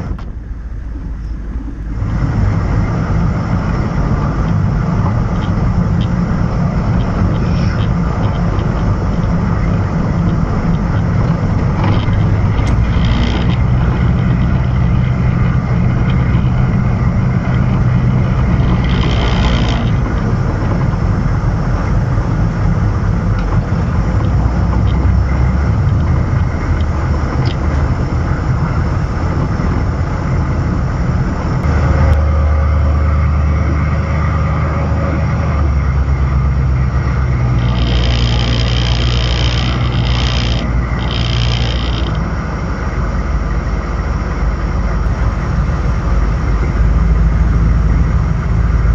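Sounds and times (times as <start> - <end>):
rush of higher noise: 0.0 - 24.7
road noise: 0.0 - 48.9
vehicle engine running: 0.0 - 48.9.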